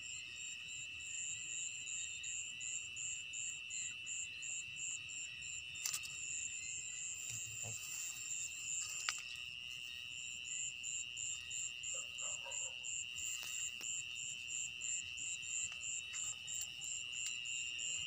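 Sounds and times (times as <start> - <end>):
crickets trilling: 0.0 - 18.0
insect chirping in pulses: 0.0 - 18.0
rustling plants: 7.2 - 9.4.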